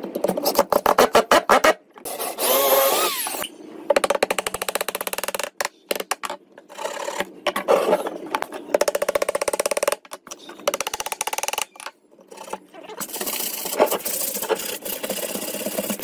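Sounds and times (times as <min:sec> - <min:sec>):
electric drill boring into wood: 0:02.2 - 0:03.4.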